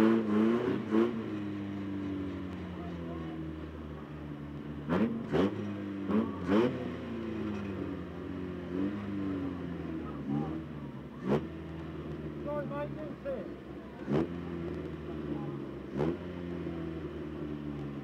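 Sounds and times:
car engine running: 0:00.0 - 0:18.0
sharp engine revs: 0:04.8 - 0:07.5, 0:11.2 - 0:11.7, 0:14.0 - 0:14.8, 0:15.9 - 0:16.8.

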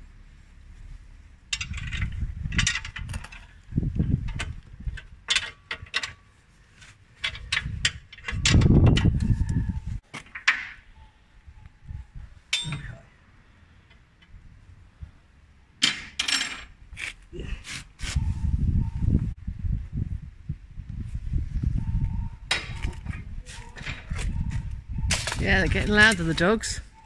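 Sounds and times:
spanner clinking against metal: 0:12.5 - 0:13.0.

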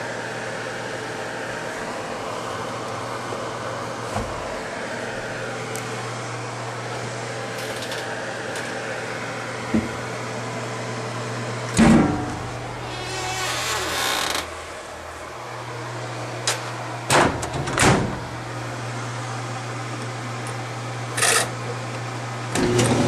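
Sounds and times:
washing machine motor hum: 0:00.0 - 0:23.0
knocks in washing machine: 0:11.8 - 0:12.4, 0:17.1 - 0:18.2.

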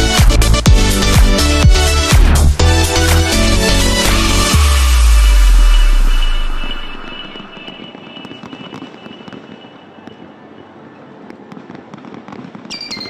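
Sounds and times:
electronic music: 0:00.0 - 0:07.7
fireworks crackling and popping: 0:04.0 - 0:13.0.

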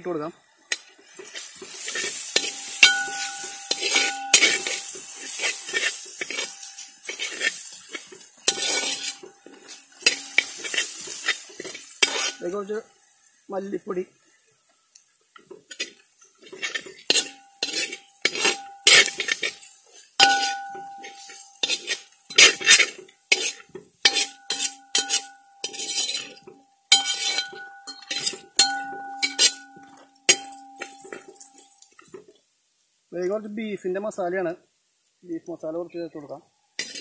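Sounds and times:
ladle scraping metal pan: 0:00.7 - 0:12.7, 0:15.7 - 0:31.4, 0:36.8 - 0:37.0
metal pan ringing: 0:02.4 - 0:07.2, 0:17.1 - 0:19.6, 0:20.2 - 0:23.0, 0:24.1 - 0:31.8.

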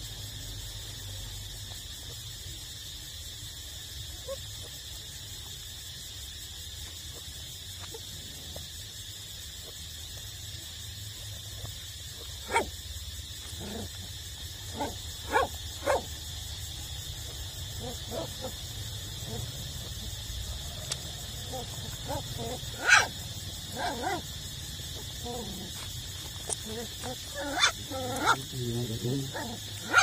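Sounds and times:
puppies yelping: 0:12.2 - 0:12.7, 0:13.4 - 0:16.1, 0:20.9 - 0:28.4, 0:29.3 - 0:30.0.

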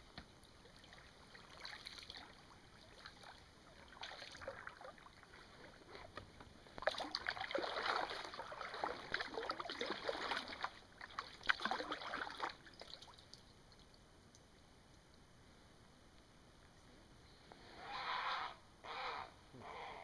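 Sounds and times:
kayak paddle splashing: 0:00.4 - 0:13.3
water dripping off paddle: 0:06.8 - 0:14.4.

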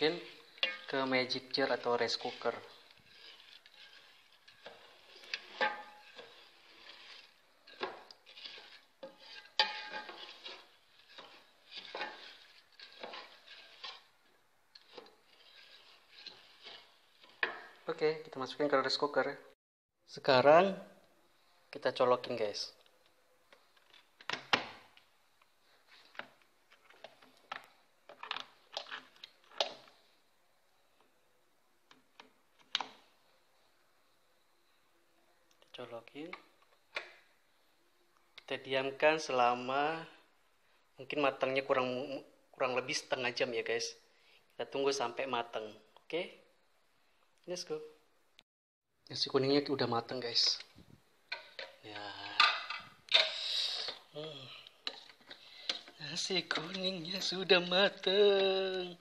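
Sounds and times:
spoon scraping and clinking pot: 0:00.0 - 0:17.9, 0:26.9 - 0:29.9, 0:51.3 - 0:58.2.

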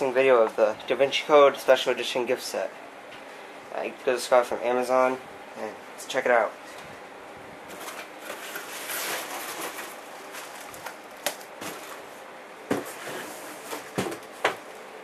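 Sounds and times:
plastic packaging knocks and crinkles: 0:07.7 - 0:12.1, 0:12.7 - 0:13.0, 0:13.6 - 0:14.7.

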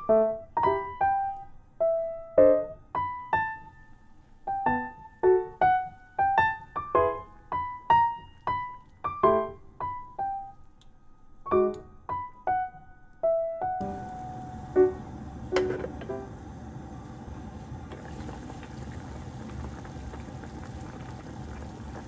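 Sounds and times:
gentle piano melody: 0:00.0 - 0:16.6.

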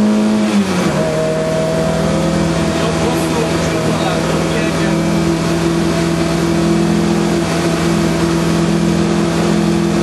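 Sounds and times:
car engine pulling hard: 0:00.0 - 0:10.0.

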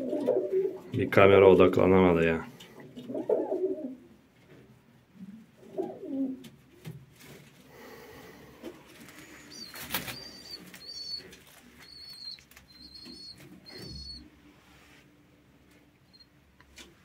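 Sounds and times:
young pigeons peeping: 0:00.0 - 0:01.4, 0:02.5 - 0:04.6, 0:05.2 - 0:15.0, 0:15.6 - 0:16.9
pigeon wings flapping: 0:08.9 - 0:14.1.

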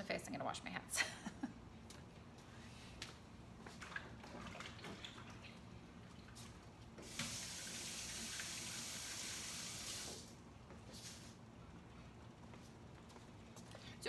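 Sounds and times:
tap water running: 0:07.0 - 0:10.4.

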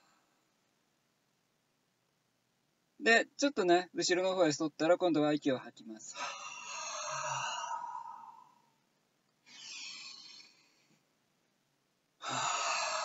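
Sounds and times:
man breathing slowly: 0:06.2 - 0:08.8, 0:09.4 - 0:11.0, 0:12.2 - 0:13.0.

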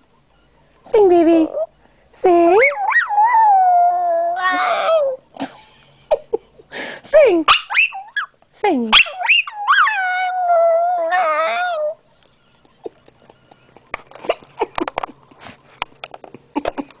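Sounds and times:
dog howling: 0:02.6 - 0:05.2, 0:09.1 - 0:12.0.

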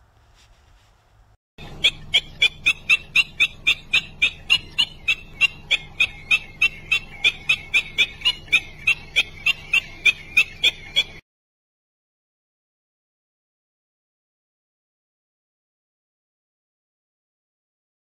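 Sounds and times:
bird calling sharp notes: 0:01.6 - 0:11.2.

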